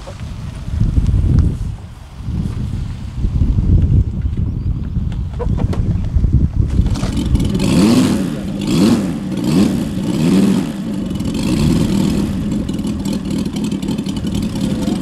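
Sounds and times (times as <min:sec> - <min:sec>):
model plane engine revving: 0:06.8 - 0:15.0.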